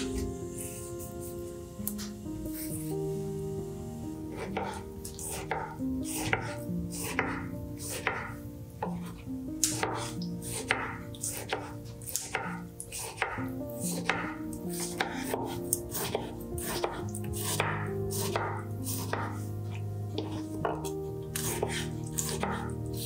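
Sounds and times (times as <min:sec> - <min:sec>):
soft background music: 0:00.0 - 0:23.0
knife tapping cutting board: 0:04.5 - 0:09.0.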